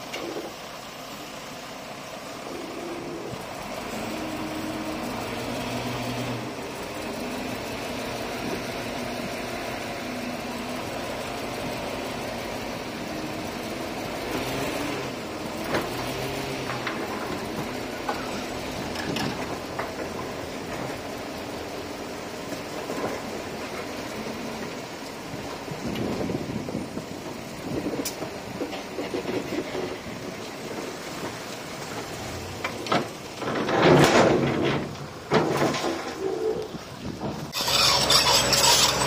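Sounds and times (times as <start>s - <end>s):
heavy machinery diesel engine: 0.0s - 39.0s
metallic clanks and knocks: 32.6s - 36.3s.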